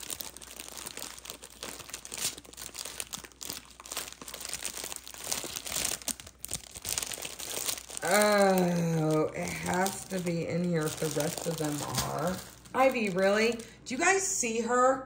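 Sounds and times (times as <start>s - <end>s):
small plastic bags crinkling: 0.0s - 14.2s.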